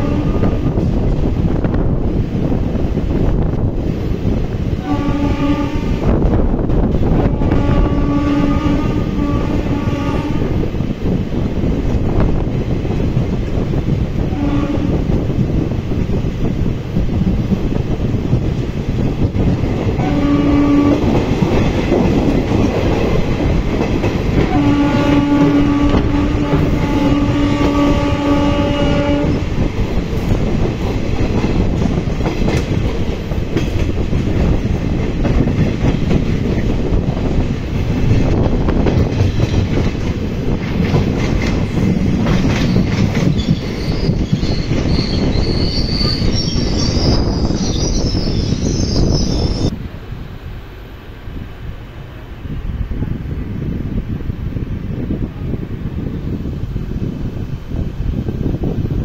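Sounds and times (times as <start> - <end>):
train horn: 0.0 - 0.9, 4.8 - 6.3, 7.1 - 10.7, 14.2 - 15.2, 20.0 - 21.4, 24.3 - 29.6
train wheels rumbling on rails: 0.0 - 59.0
brake squeal: 43.4 - 49.7.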